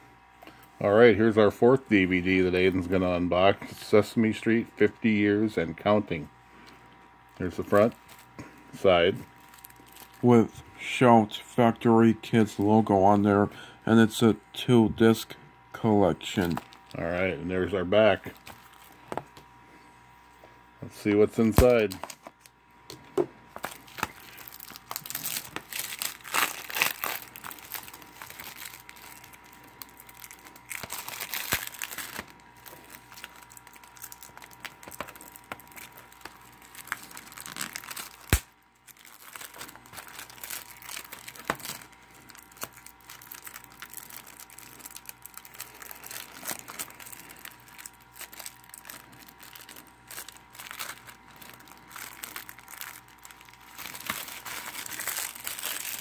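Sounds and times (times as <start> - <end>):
plastic shrink-wrap crinkling: 7.3 - 10.6, 16.2 - 19.4, 21.3 - 22.6, 23.5 - 56.0.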